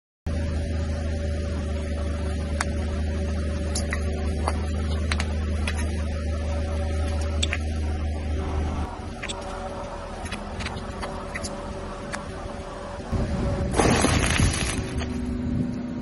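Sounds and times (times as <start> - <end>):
car engine humming: 0.3 - 16.0
plastic bags bursting: 13.7 - 15.1.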